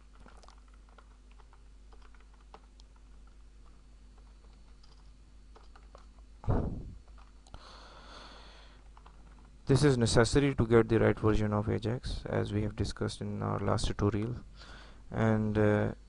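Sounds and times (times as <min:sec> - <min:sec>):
typing on computer keyboard: 0:00.0 - 0:06.2, 0:08.8 - 0:09.4.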